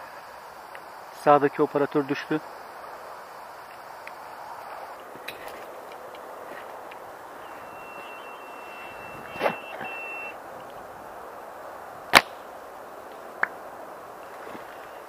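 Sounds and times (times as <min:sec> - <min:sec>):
steady background hiss: 0:00.0 - 0:15.0
steady high beep: 0:07.4 - 0:10.4
airsoft rifle shot crack: 0:12.1 - 0:12.4.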